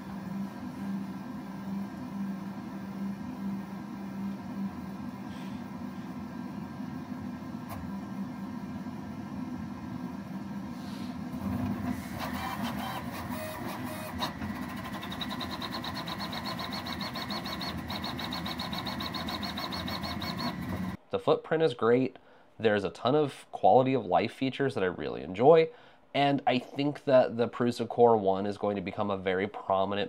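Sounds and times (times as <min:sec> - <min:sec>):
printer low hum: 0:00.0 - 0:21.0
stepper motors whining: 0:11.4 - 0:21.0.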